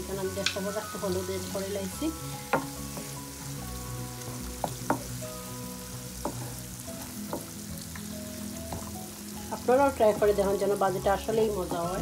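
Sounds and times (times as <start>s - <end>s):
onions sizzling in hot oil: 0.0s - 12.0s
wooden spoon scraping a pan: 6.2s - 7.6s.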